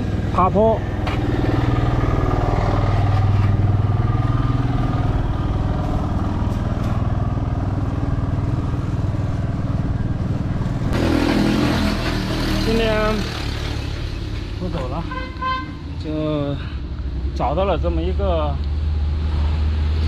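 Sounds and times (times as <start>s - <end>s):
low hum: 0.0s - 11.2s
road rumble: 0.0s - 20.0s.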